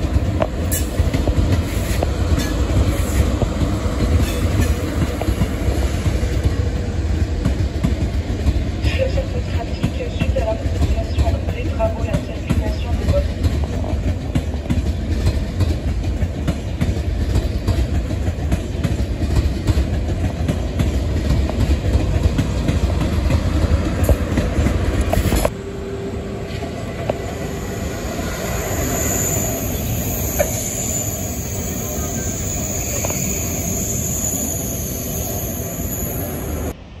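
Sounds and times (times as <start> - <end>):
high-speed train rolling past: 0.0 - 37.0
train wheels squealing: 4.0 - 5.6, 27.2 - 36.8.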